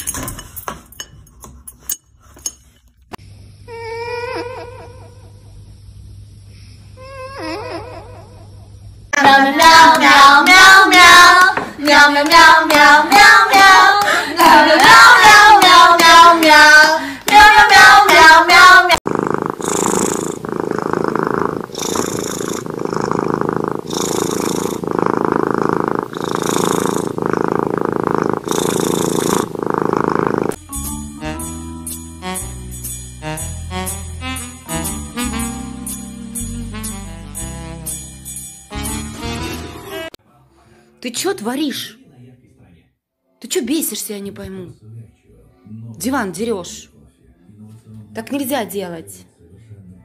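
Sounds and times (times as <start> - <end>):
cat purring: 18.2 - 30.6.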